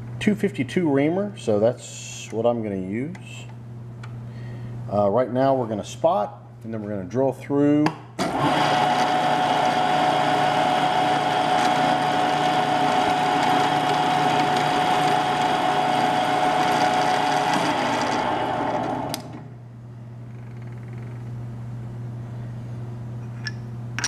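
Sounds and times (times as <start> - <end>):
milling machine spindle whine: 8.4 - 19.4.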